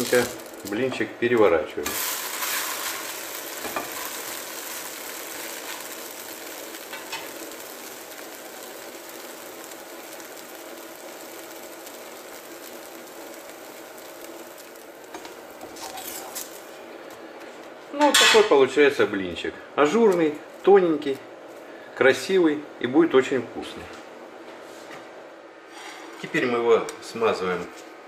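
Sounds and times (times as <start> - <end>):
pancake sizzling in a pan: 0.0 - 1.0, 1.8 - 16.9.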